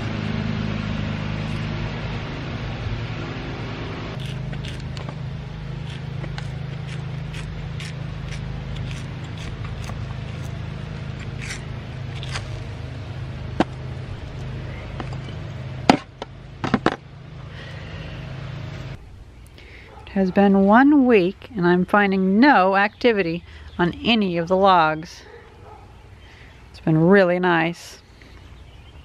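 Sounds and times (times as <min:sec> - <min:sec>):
steady low hum: 0:00.0 - 0:29.0
bark scraping and crackling: 0:04.1 - 0:12.9, 0:25.2 - 0:26.1.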